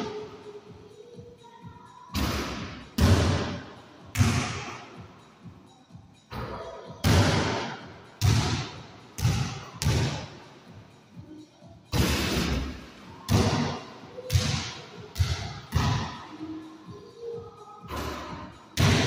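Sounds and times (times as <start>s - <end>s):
basketball bouncing with echo: 2.1s - 5.6s, 6.3s - 10.5s, 11.9s - 19.0s.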